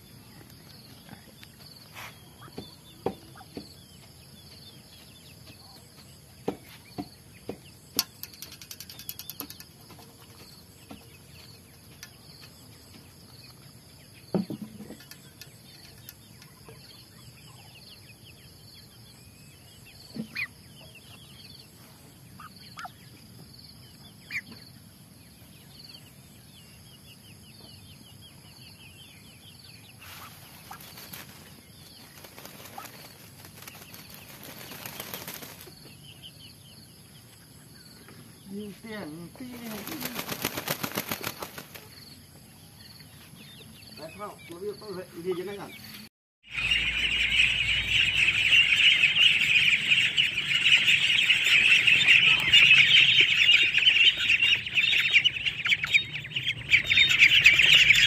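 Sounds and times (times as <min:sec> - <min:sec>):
wing flapping and feather shaking: 0:30.6 - 0:35.8, 0:39.6 - 0:42.0.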